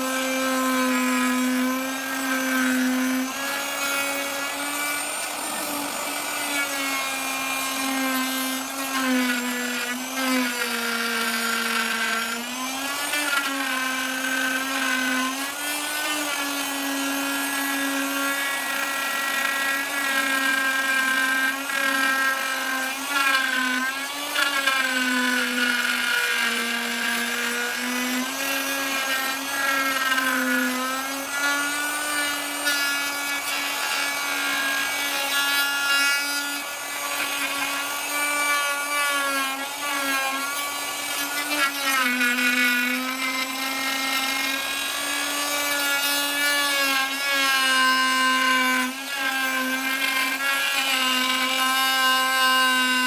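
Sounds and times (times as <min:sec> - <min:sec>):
electric router cutting wood: 0:00.0 - 0:53.0.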